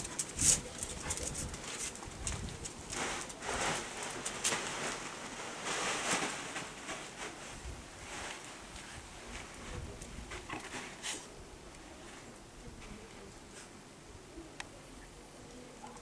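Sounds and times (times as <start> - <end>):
dogs scuffling and scrabbling: 0.0 - 11.3.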